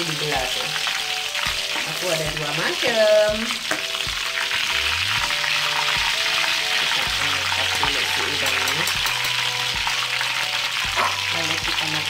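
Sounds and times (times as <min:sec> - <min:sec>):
oil sizzling in a wok: 0:00.0 - 0:12.0
spoon knocking against pan: 0:08.4 - 0:09.4, 0:10.9 - 0:11.3.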